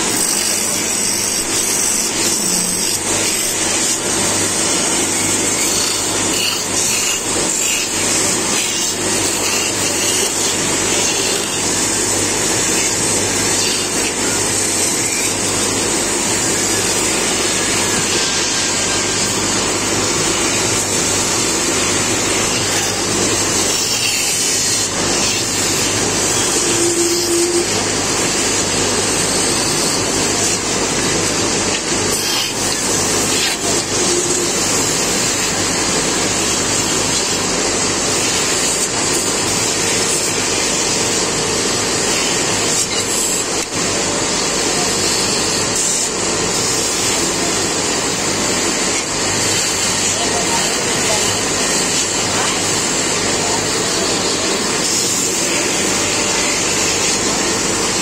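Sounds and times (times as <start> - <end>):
chisel scraping spinning wood: 0.0 - 27.8
wood lathe motor hum: 0.0 - 44.6.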